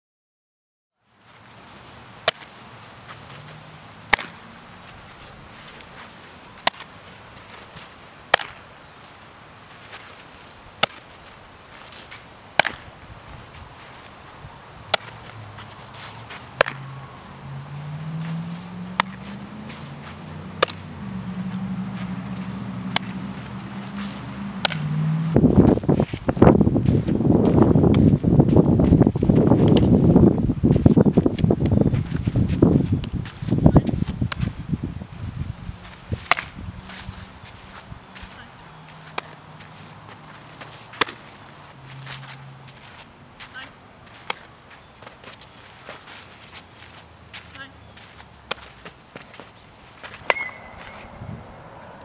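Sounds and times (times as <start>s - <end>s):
ball smacking into leather glove: 4.1s - 4.4s, 6.6s - 6.9s, 7.6s - 8.6s, 10.8s - 11.1s, 12.6s - 12.9s, 14.9s - 16.9s, 18.2s - 20.9s, 22.0s - 25.8s, 29.6s - 29.9s, 36.2s - 36.6s, 39.1s - 39.4s, 40.9s - 41.3s, 50.1s - 51.0s
wind buffeting microphone: 18.8s - 38.6s, 50.5s - 52.0s.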